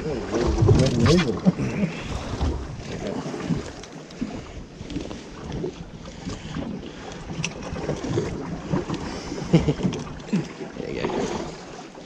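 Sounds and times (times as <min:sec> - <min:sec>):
wind buffeting microphone: 0:00.0 - 0:10.2
water lapping against boat: 0:00.0 - 0:12.0.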